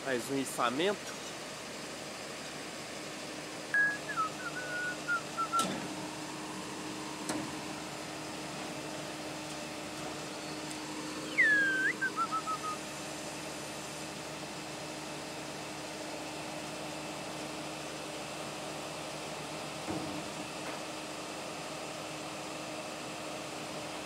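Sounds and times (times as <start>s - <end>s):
truck engine humming: 0.8s - 22.6s
person whistling: 3.8s - 5.7s, 11.3s - 12.8s.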